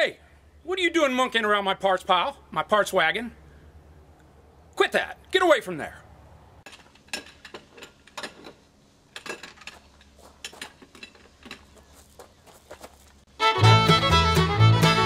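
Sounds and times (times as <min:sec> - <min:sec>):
metal parts clinking: 0:06.7 - 0:11.8
bluegrass fiddle music: 0:13.3 - 0:15.0.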